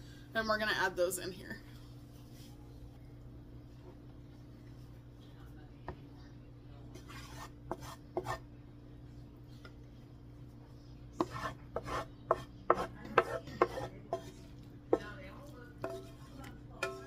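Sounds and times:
wooden spoon scraping frying pan: 0:07.0 - 0:08.4, 0:11.2 - 0:17.0.

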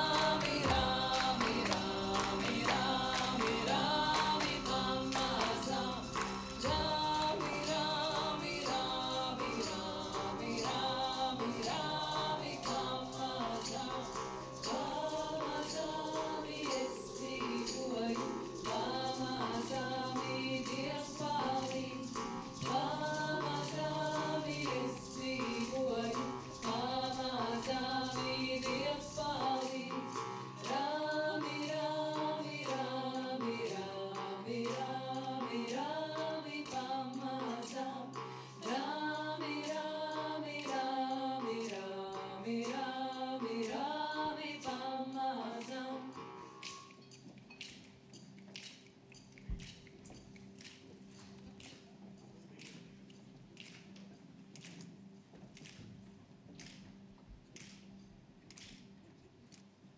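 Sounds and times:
singers harmonizing: 0:00.0 - 0:46.8
percussion beat: 0:00.0 - 0:59.0.

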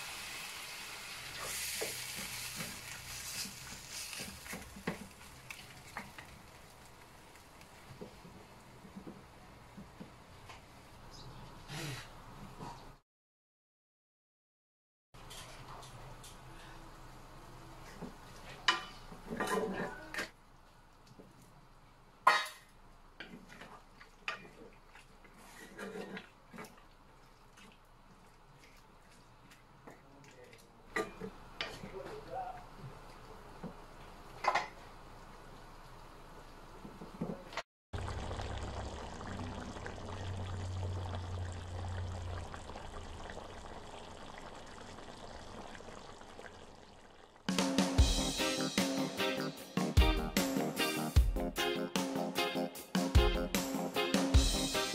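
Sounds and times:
wooden spatula scraping in wok: 0:01.3 - 0:06.8, 0:23.2 - 0:27.6
sauce bubbling and popping: 0:38.0 - 0:47.6.

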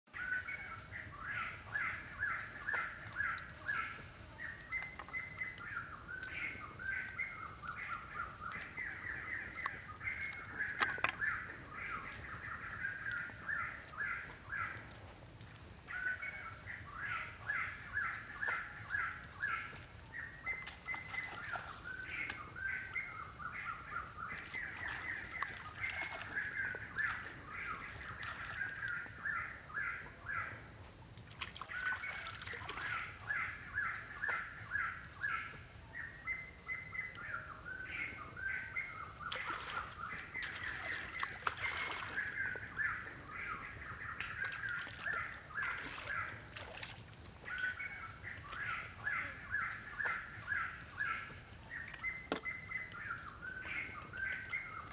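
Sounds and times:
bird calling: 0:00.2 - 0:15.2
insect drone: 0:00.2 - 0:54.9.

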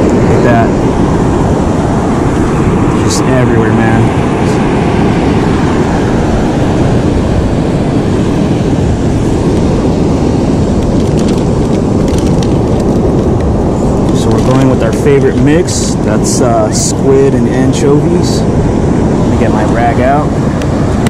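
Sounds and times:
heavy surf roaring: 0:00.0 - 0:21.0.

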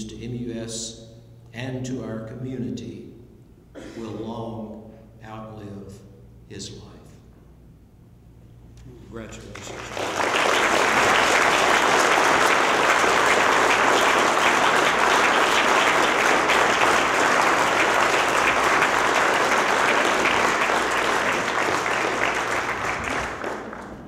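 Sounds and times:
audience applauding: 0:09.5 - 0:24.0.

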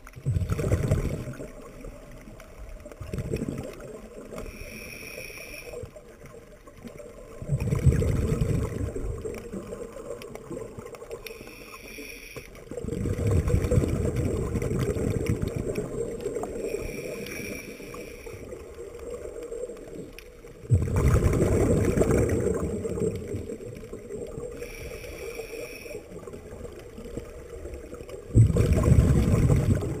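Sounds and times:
exhaled bubbles rushing: 0:00.0 - 0:04.6, 0:05.7 - 0:11.2, 0:12.6 - 0:24.8, 0:26.0 - 0:30.0
regulator whistling hiss: 0:04.5 - 0:05.8, 0:11.3 - 0:12.4, 0:16.6 - 0:18.4, 0:24.6 - 0:26.0.

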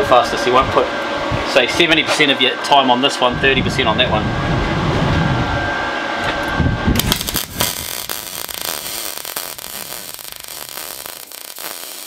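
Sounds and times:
welding arc fizzing crackle: 0:07.0 - 0:12.0.

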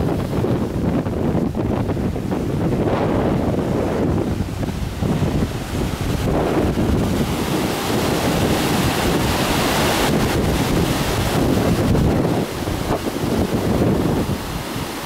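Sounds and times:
ocean surf breaking: 0:00.0 - 0:15.0
wind on microphone: 0:00.0 - 0:15.0.

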